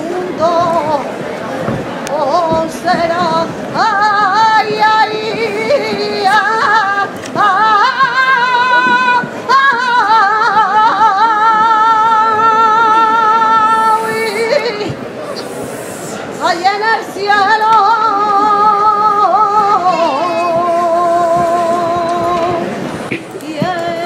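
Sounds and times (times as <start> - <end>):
woman singing unaccompanied: 0.0 - 1.2, 2.0 - 15.0, 16.4 - 24.0.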